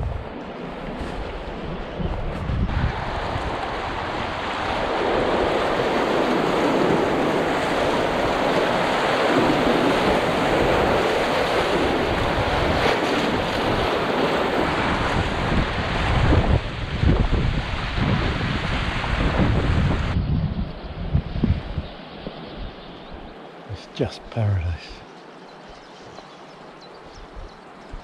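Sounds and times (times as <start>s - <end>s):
wind buffeting microphone: 0.0s - 23.3s, 25.6s - 28.0s
white water rushing and splashing: 2.8s - 20.1s.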